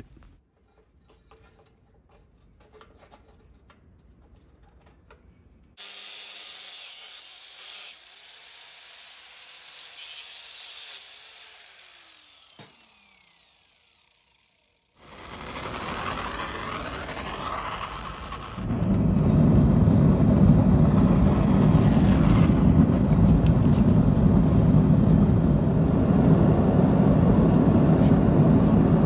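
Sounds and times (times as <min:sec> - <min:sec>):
cutoff wheel grinding steel: 0:06.8 - 0:23.9
gas torch burner: 0:15.0 - 0:29.0.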